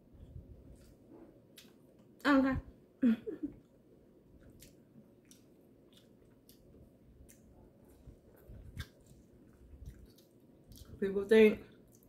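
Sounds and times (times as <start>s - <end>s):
faint chewing: 3.5s - 11.0s, 11.7s - 12.0s.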